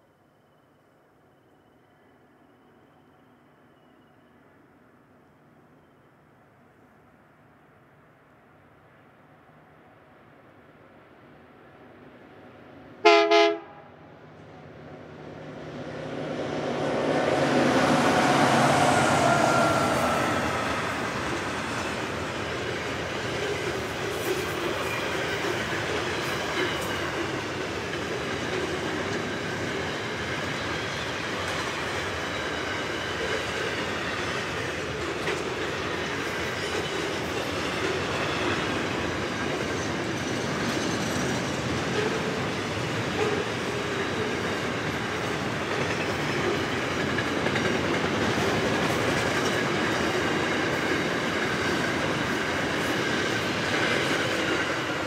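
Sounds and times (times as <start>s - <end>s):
diesel locomotives passing: 1.3s - 55.0s
train wagons rolling with wheel clicks: 20.0s - 55.0s.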